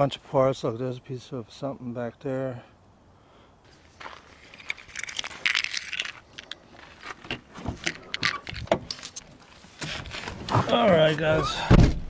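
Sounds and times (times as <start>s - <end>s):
clicking and rattling: 4.5s - 9.4s.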